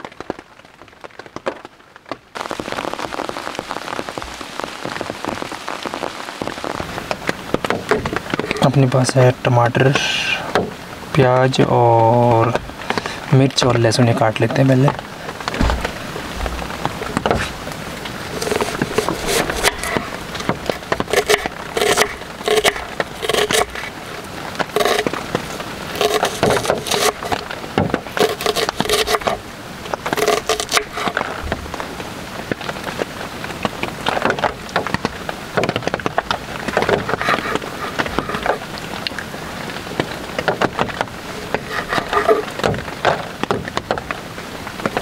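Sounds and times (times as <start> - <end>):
knife chopping on wooden board: 18.4 - 23.9, 24.8 - 25.1, 26.0 - 27.4, 28.2 - 29.4, 30.1 - 31.1.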